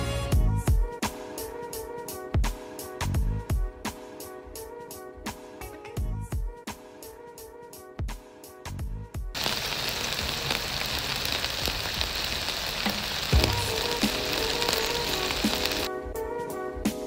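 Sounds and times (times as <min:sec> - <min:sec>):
background music: 0:00.0 - 0:17.0
chicken sizzling on foil: 0:09.4 - 0:15.9
small crackles: 0:09.4 - 0:15.9.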